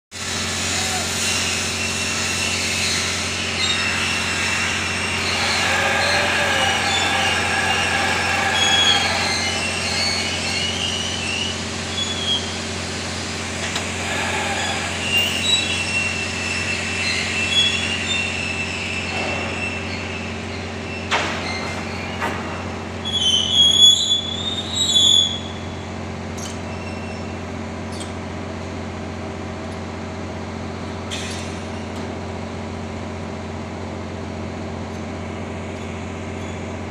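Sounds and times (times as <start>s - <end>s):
metallic squeals and screeches: 1.2s - 12.6s, 13.9s - 25.8s, 26.4s - 28.1s.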